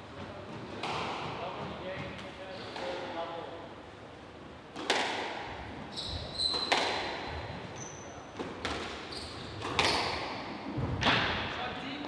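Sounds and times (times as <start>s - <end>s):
squash ball echoing cracks: 4.7s - 5.6s, 6.6s - 7.3s, 8.4s - 11.5s
shoes squeaking on wooden floor: 5.9s - 6.7s.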